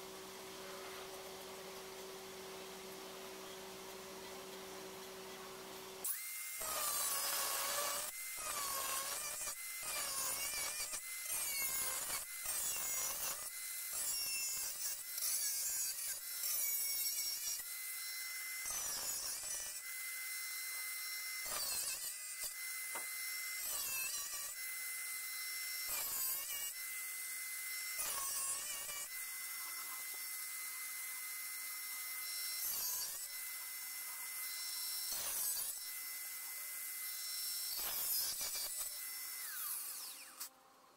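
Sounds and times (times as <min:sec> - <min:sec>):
angle grinder cutting metal: 0:06.0 - 0:40.6.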